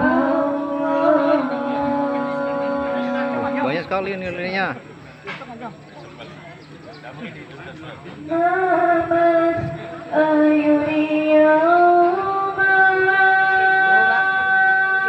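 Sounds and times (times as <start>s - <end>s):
woman singing long notes: 0.0s - 3.7s, 8.3s - 15.0s.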